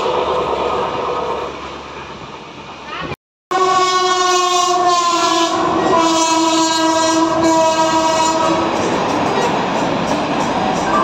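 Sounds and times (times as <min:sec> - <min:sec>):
train rushing past: 0:00.0 - 0:11.0
locomotive air horn: 0:03.5 - 0:08.7.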